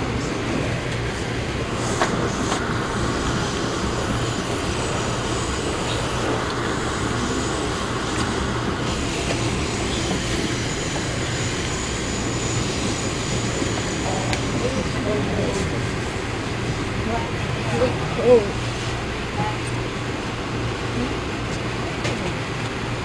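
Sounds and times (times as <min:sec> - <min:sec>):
train car rumble and rail noise: 0:00.0 - 0:23.0.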